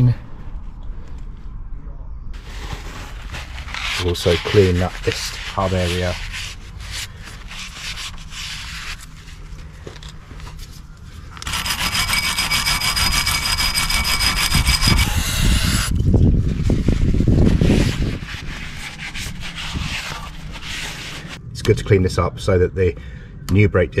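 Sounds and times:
rag wiping: 0:02.4 - 0:09.5, 0:16.5 - 0:21.4
wire brush scrubbing metal: 0:03.2 - 0:09.0, 0:11.4 - 0:15.9.

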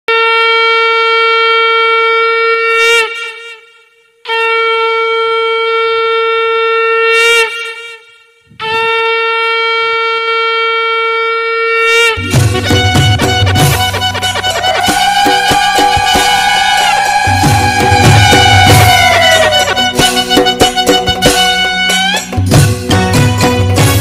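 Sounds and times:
conch shell blasts: 0:00.1 - 0:24.0
devotional music with drums: 0:12.2 - 0:24.0.

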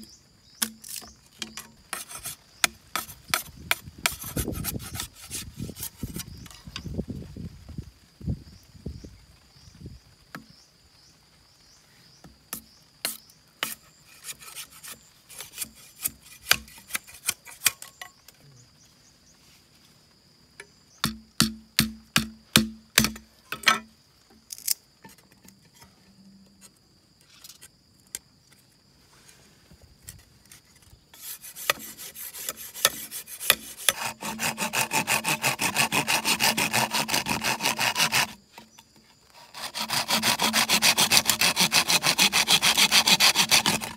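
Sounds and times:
hand saw cutting bamboo: 0:00.6 - 0:06.3, 0:13.1 - 0:18.0, 0:31.1 - 0:43.9
knife cutting bamboo: 0:00.6 - 0:06.3, 0:12.6 - 0:18.2, 0:30.5 - 0:43.9.

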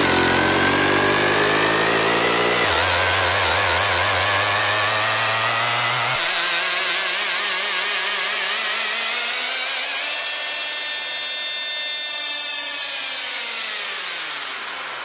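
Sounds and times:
wavering synth chord: 0:00.0 - 0:05.4.

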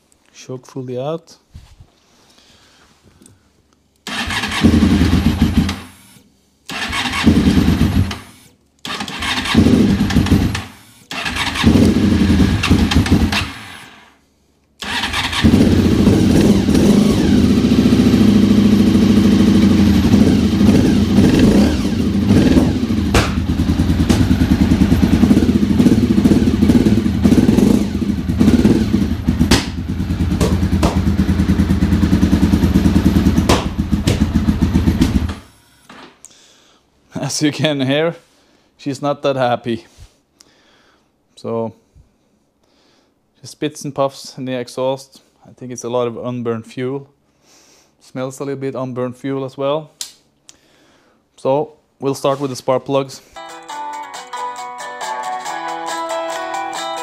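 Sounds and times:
motorcycle starting attempts: 0:04.1 - 0:05.8, 0:06.7 - 0:08.3, 0:08.9 - 0:13.9, 0:14.8 - 0:35.5
motorcycle engine running unevenly: 0:15.5 - 0:35.4.

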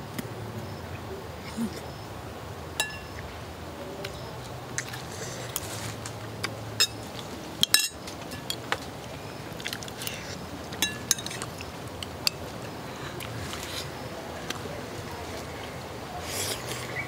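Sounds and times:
spoons clinking on ceramic bowls: 0:02.8 - 0:03.2, 0:06.8 - 0:07.0, 0:07.6 - 0:08.6, 0:10.8 - 0:12.4.

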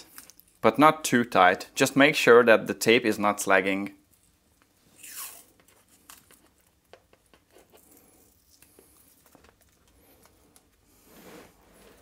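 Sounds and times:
tape rustling and clicking: 0:00.0 - 0:00.7, 0:04.1 - 0:10.9.

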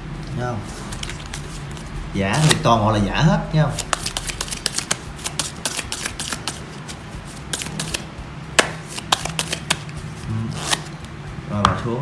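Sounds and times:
playing cards being shuffled: 0:00.7 - 0:02.7, 0:03.7 - 0:11.1.

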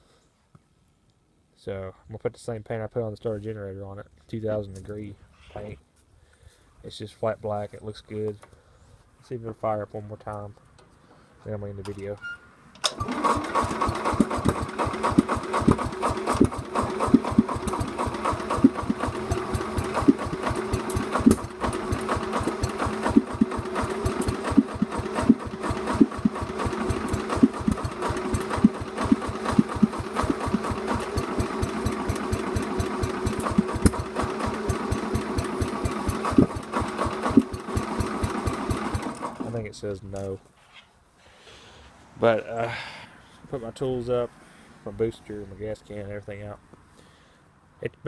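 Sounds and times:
tractor engine idling: 0:13.0 - 0:39.7.

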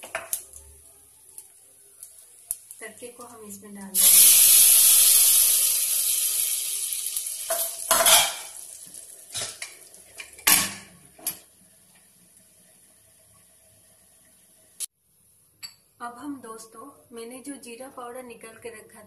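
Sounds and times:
hot oil sizzling: 0:00.0 - 0:14.9
metal pan and lid clanks: 0:07.5 - 0:08.6, 0:09.3 - 0:11.4.

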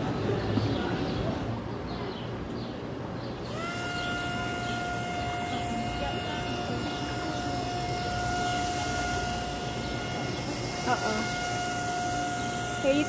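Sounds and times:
small electric motor whining: 0:03.4 - 0:13.0.

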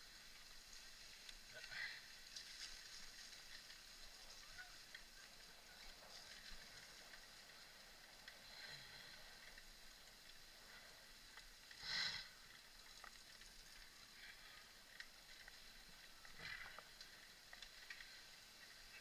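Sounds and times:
mountain bike riding on dirt: 0:00.0 - 0:19.0
small ticks: 0:00.1 - 0:19.0.

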